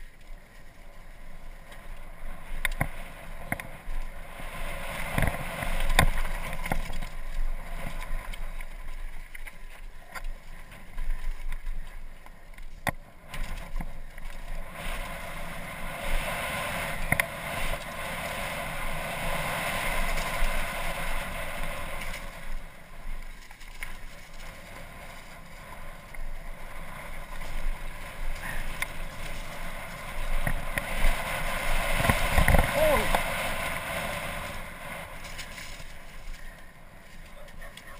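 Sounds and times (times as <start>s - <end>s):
tyre noise on dirt: 0.0s - 37.9s
wind rushing over microphone: 23.9s - 37.9s.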